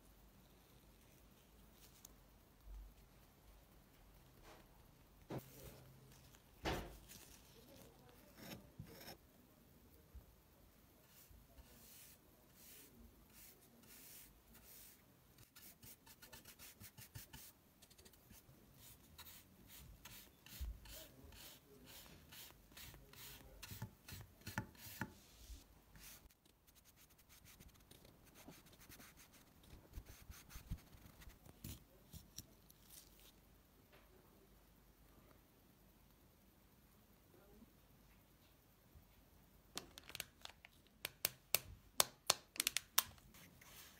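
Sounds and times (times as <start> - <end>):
paintbrush strokes on wood: 11.0 - 17.6, 18.3 - 31.4, 43.4 - 43.9.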